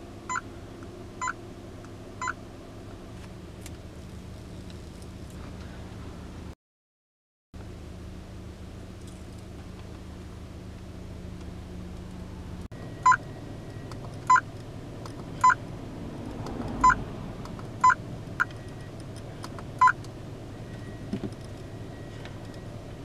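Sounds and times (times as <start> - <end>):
short electronic beeps: 12.8 - 14.5, 15.4 - 15.6, 17.8 - 18.9.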